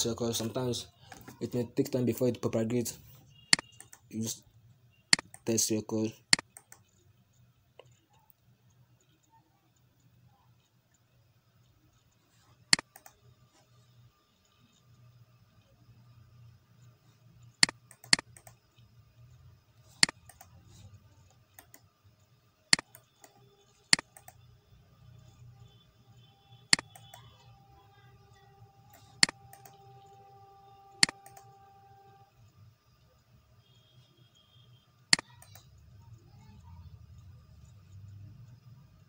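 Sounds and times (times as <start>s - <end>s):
faint low hum: 0.0s - 39.0s
computer mouse clicking: 3.5s - 4.1s, 5.1s - 5.6s, 6.3s - 13.2s, 16.8s - 18.8s, 19.9s - 20.6s, 21.2s - 22.0s, 22.7s - 24.5s, 26.7s - 27.4s, 28.9s - 30.2s, 30.9s - 31.6s, 35.1s - 35.8s.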